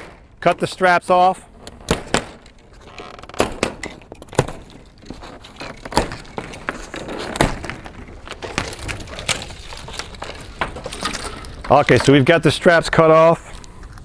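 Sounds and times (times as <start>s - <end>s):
packing straps snapping: 1.6s - 12.0s
straps rustling and slapping box: 4.4s - 12.0s.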